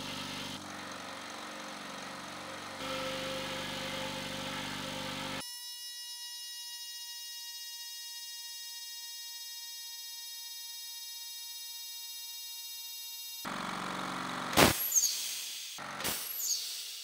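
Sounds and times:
air compressor motor: 0.0s - 5.4s, 13.5s - 16.6s
buzzer-like alarm tone: 5.4s - 13.5s.

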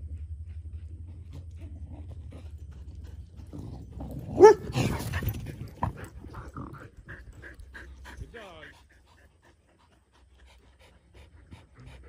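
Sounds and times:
low steady rumble: 0.0s - 12.0s
dog barking: 4.4s - 4.9s.

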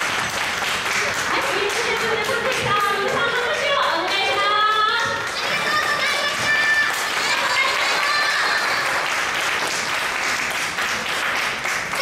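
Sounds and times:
audience applauding: 0.0s - 4.4s, 5.2s - 12.0s
voices: 1.3s - 8.9s.

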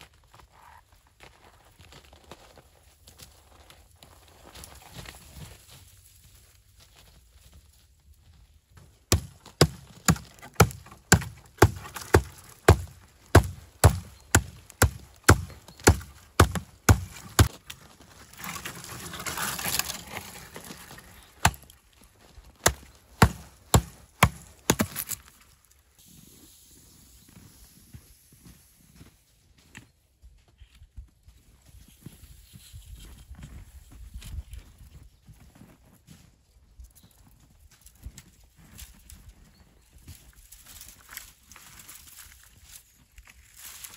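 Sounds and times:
hatchet chopping tree trunk: 9.1s - 17.6s, 21.4s - 21.8s, 22.6s - 25.3s.

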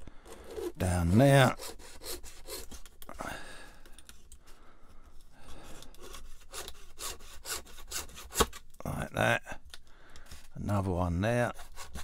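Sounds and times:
hobby saw rasping through plastic: 0.1s - 3.0s, 5.5s - 8.7s, 11.4s - 12.0s.

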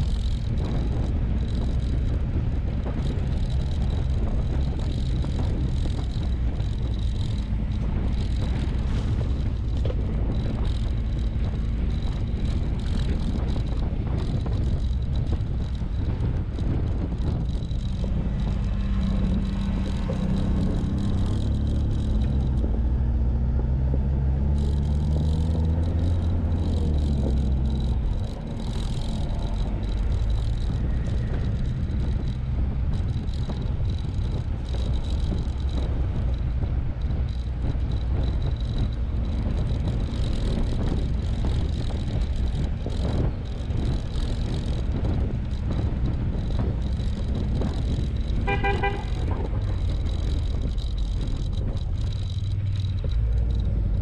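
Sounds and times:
engine and tyres on gravel: 0.0s - 54.0s
vehicle horn short beeps: 48.5s - 49.1s.

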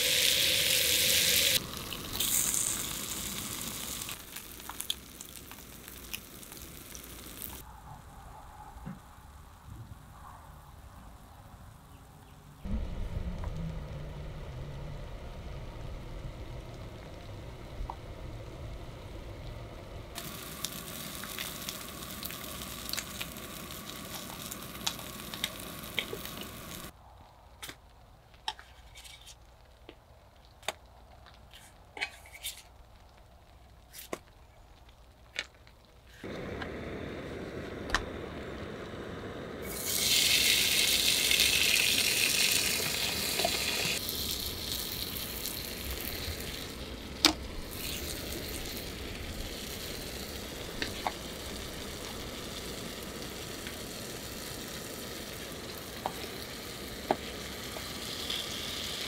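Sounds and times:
meat sizzling in a skillet: 0.0s - 7.6s, 20.2s - 26.9s, 39.2s - 59.0s
vegetables sizzling loudly: 0.0s - 7.6s, 20.2s - 26.9s, 38.1s - 59.0s.

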